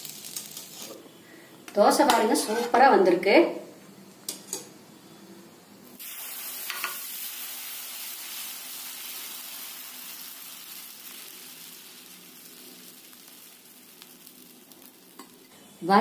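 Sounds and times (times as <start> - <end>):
batter sizzling on hot griddle: 0.0 - 1.1, 5.9 - 15.7.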